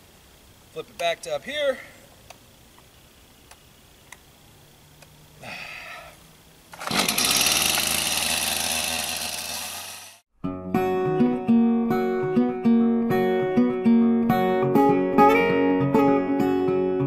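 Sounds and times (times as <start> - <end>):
chainsaw pull-start: 6.7 - 10.2
chainsaw running: 6.7 - 10.2.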